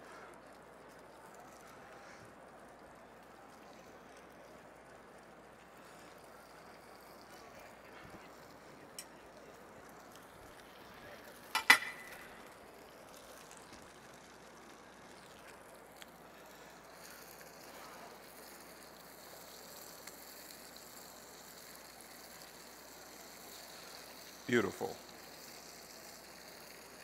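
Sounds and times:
faint steady sizzle: 0.0 - 27.0.

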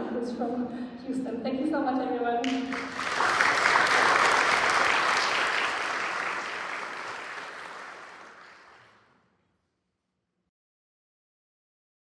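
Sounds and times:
audience applauding: 2.5 - 8.9.

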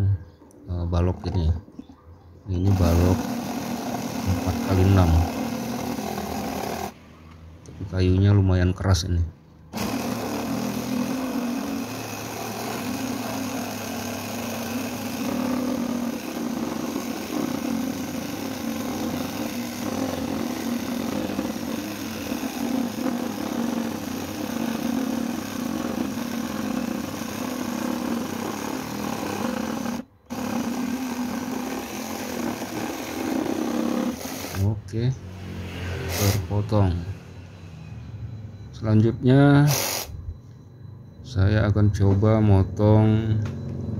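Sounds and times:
reciprocating saw cutting wood: 2.6 - 7.0, 9.7 - 34.8, 35.5 - 36.6.

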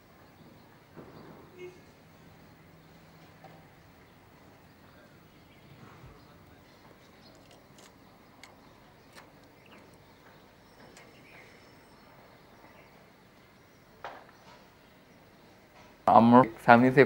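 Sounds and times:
small clicks: 7.3 - 10.0.

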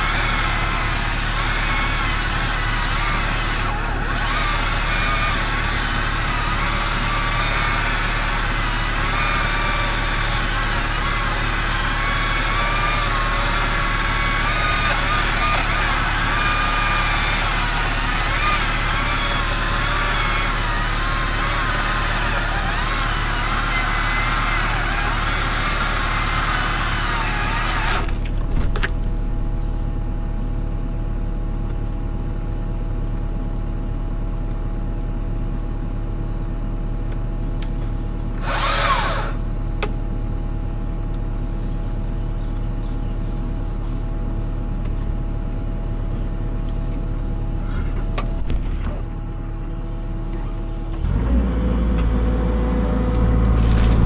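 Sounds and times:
motor running: 0.0 - 29.8, 37.8 - 40.4, 46.6 - 54.0.

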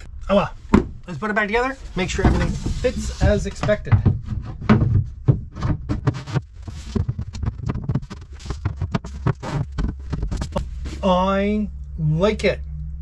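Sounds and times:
low steady hum: 0.0 - 13.0
wood knocking on wood: 0.7 - 1.0, 2.1 - 10.9.

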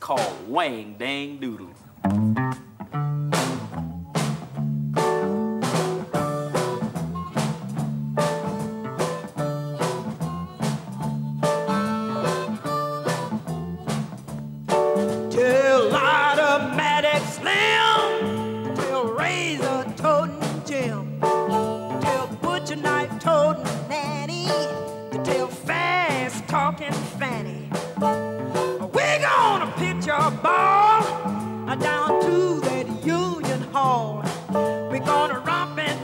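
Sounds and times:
blues band playing: 0.0 - 36.0
woman singing: 15.3 - 27.7, 28.5 - 34.3, 34.9 - 36.0.

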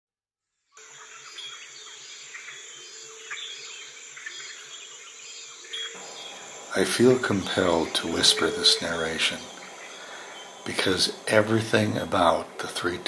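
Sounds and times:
short insect chirps: 0.7 - 12.8
insects droning: 0.8 - 13.0
faint low pulsing: 6.0 - 13.0.

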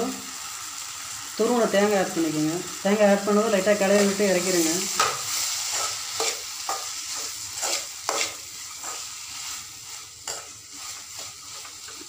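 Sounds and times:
frying sizzle: 0.0 - 12.0
metal spatula scraping pan: 4.6 - 12.0.

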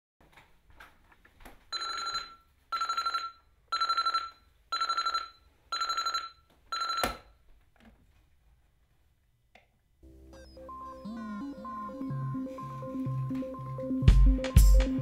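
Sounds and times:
alarm clock rapid beeping: 1.8 - 7.2.

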